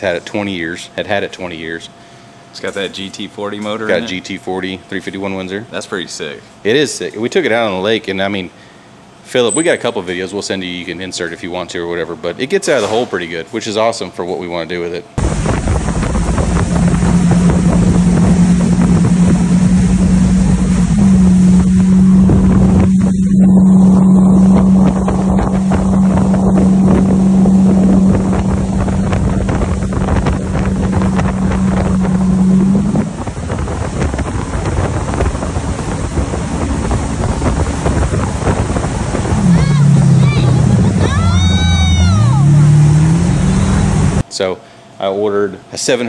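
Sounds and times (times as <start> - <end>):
boat engine drone: 15.2 - 44.2
water rushing: 15.2 - 44.2
wind noise on microphone: 15.2 - 44.2.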